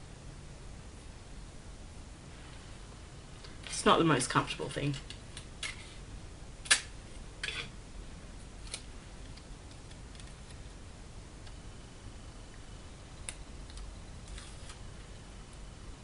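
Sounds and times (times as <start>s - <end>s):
low hiss: 0.0s - 16.0s
tape crinkle: 13.2s - 14.9s.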